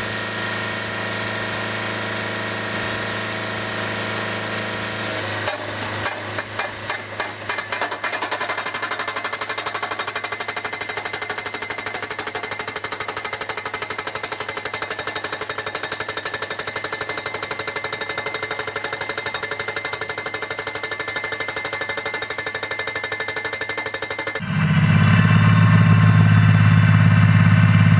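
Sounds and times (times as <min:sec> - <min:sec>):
hydraulic hammer striking steel post: 0:05.4 - 0:24.4.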